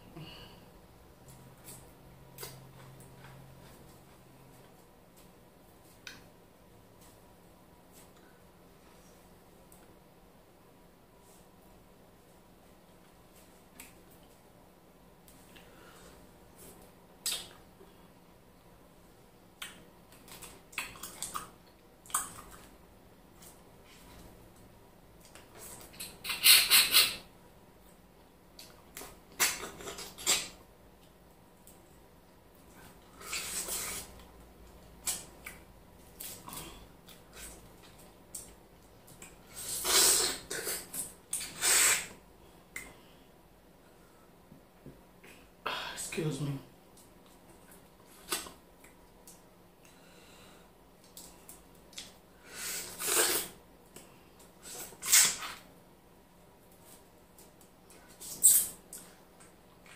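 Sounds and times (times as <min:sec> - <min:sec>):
wet mouth smacks and clicks: 0:17.2 - 0:17.6.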